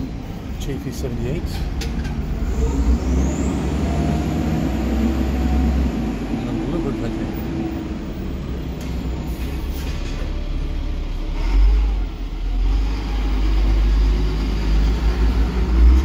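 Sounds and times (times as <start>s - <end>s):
bus engine rumble: 0.0s - 16.0s.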